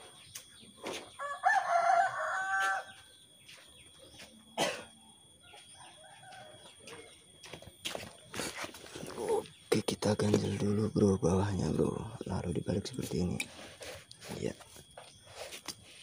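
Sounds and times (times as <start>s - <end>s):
rooster crowing: 1.2s - 3.1s, 5.5s - 7.2s.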